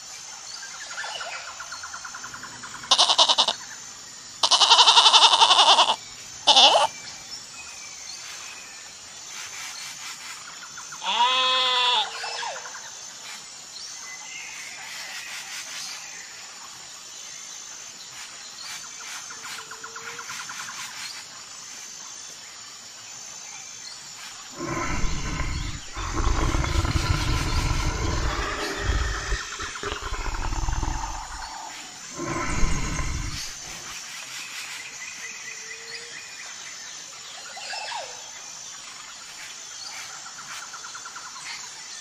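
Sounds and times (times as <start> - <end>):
goat kid bleating: 2.9 - 3.5, 4.4 - 6.9
lion cubs growling: 24.5 - 33.9.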